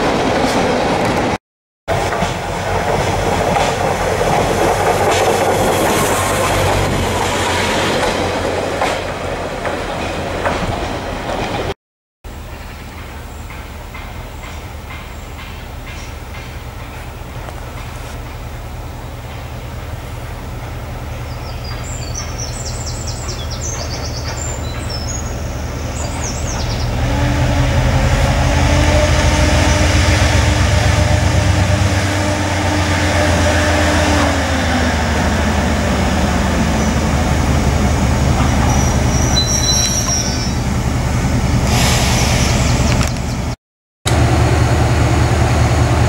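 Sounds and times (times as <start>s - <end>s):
diesel locomotive engine drone: 0.0s - 46.0s
faint high squeal: 38.7s - 40.6s.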